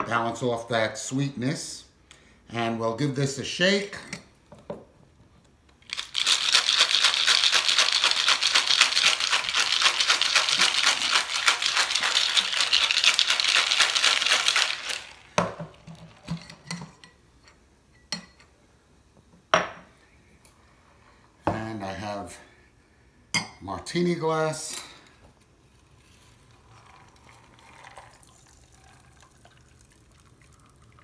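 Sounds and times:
cocktail shaker rattling: 0:05.9 - 0:16.4
shaker knocks and clinks: 0:05.9 - 0:17.0.

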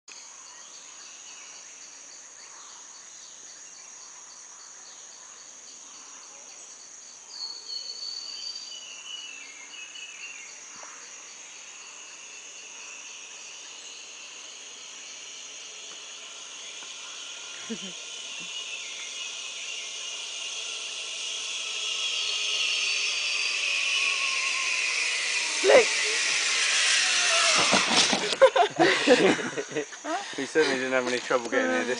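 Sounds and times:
insect chorus buzzing: 0:00.1 - 0:31.9
rapid pulsing trill: 0:14.0 - 0:29.2
high call with falling notes: 0:16.2 - 0:29.2.

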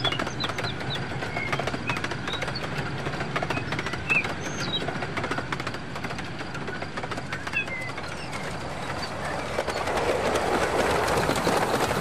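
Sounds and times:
bird chirps: 0:00.0 - 0:05.0, 0:06.7 - 0:10.0
model train rolling past: 0:00.0 - 0:12.0
train wheels clicking over track: 0:00.0 - 0:12.0.

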